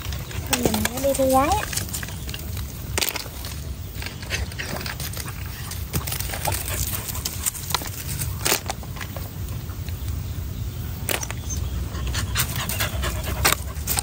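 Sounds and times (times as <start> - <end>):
dog panting: 5.3 - 7.7, 11.8 - 14.0.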